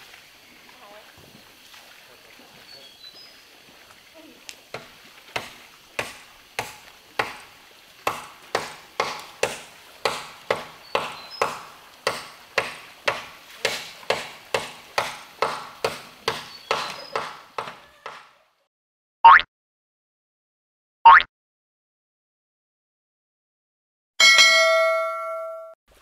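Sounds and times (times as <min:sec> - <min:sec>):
blade chopping wood: 0:04.7 - 0:18.2.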